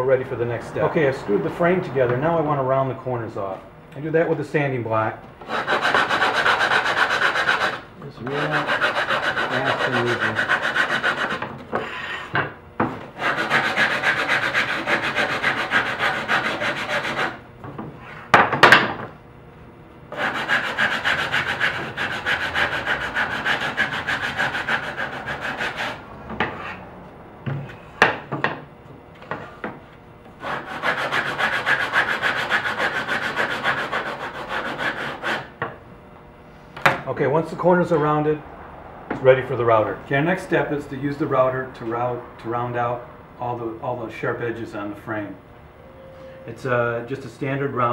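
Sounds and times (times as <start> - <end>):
sanding block on wood: 5.5 - 12.0, 13.2 - 17.4, 20.1 - 26.8, 30.4 - 35.5.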